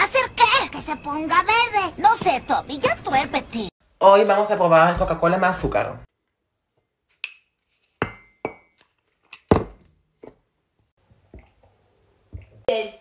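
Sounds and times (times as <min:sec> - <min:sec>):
metal spoon clinking glass: 0:08.0 - 0:09.6.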